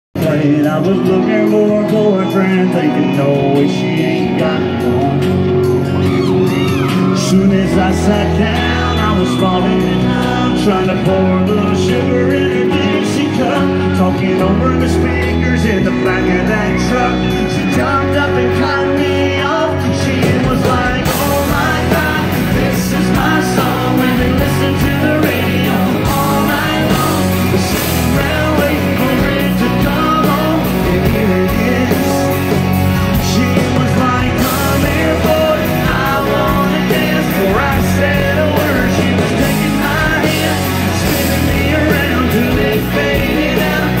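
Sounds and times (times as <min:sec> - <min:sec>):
live country band: 0:00.2 - 0:44.0
person singing: 0:00.2 - 0:44.0
steady drum beat: 0:17.7 - 0:44.0.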